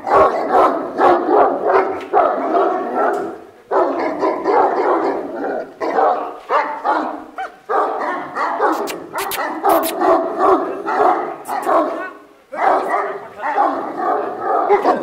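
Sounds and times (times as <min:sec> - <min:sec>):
dogs barking: 0:00.0 - 0:15.0
sharp clicks: 0:08.8 - 0:10.0.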